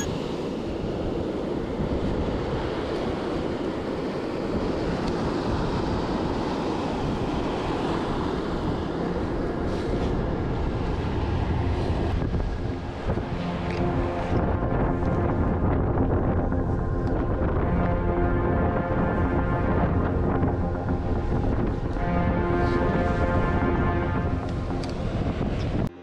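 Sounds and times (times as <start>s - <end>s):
waves breaking on shore: 0.0s - 26.0s
wind buffeting microphone: 0.0s - 26.0s.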